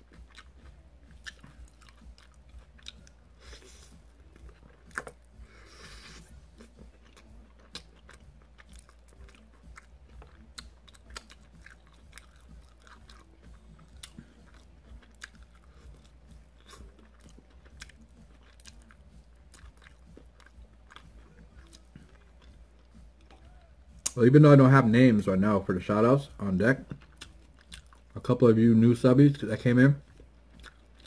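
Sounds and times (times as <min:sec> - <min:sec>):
person chewing and biting: 0:00.0 - 0:24.2, 0:26.8 - 0:28.1, 0:30.1 - 0:31.0
faint low hum: 0:00.0 - 0:31.0
small crunches and mouth clicks: 0:06.5 - 0:24.2.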